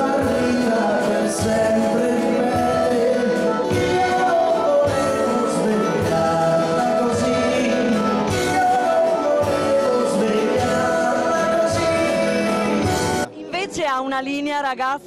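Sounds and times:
steady drum beat: 0.0 - 13.3
live band music: 0.0 - 15.0.

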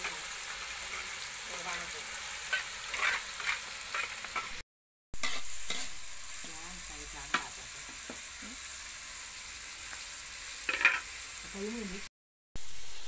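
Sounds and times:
metal spatula scraping a wok: 0.0 - 1.2, 2.2 - 4.6, 5.2 - 6.4, 10.6 - 11.2
food sizzling in a wok: 0.0 - 4.6, 5.2 - 13.0.

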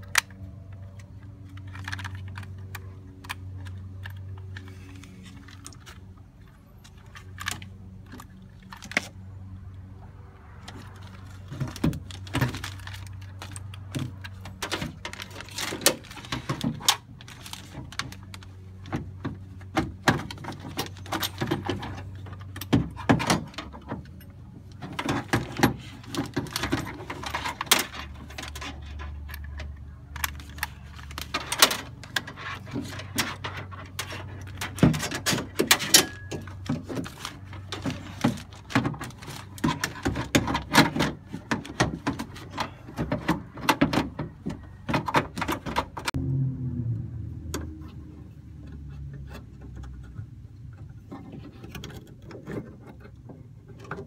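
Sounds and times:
parts rattling against metal panel: 30.2 - 46.1.

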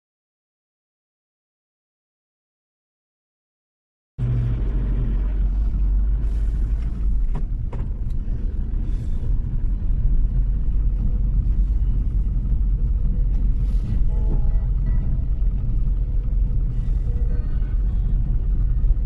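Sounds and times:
engine and road rumble: 4.2 - 19.0
brief tone: 13.6 - 18.9.

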